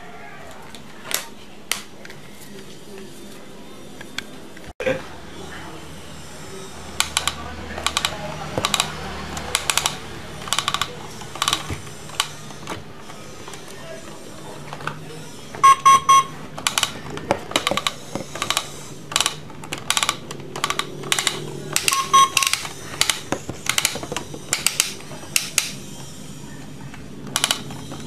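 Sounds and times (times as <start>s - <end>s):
toy scanner beeps: 15.6s - 16.5s, 21.8s - 22.8s.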